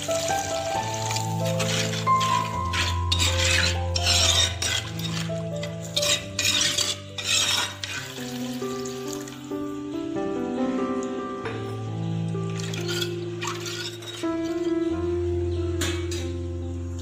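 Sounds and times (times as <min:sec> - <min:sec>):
background music with held notes: 0:00.0 - 0:17.0
spoon stirring thick sauce in pan: 0:01.0 - 0:08.3.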